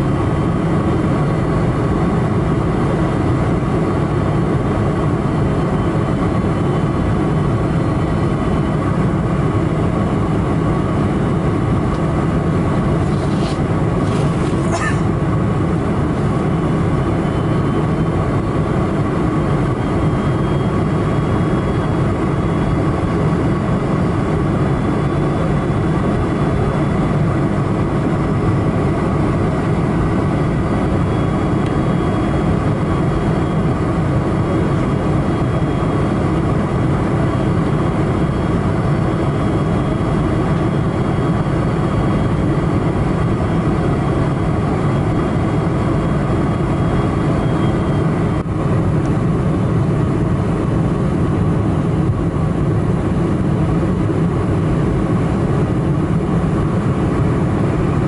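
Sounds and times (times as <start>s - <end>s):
airplane cabin engine drone: 0.0s - 58.0s
faint steady whines: 0.0s - 58.0s
rushing airflow: 9.3s - 17.0s.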